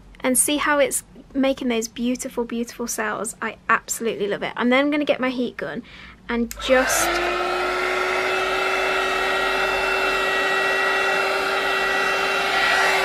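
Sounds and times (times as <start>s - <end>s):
heat gun blowing air: 6.6s - 13.0s.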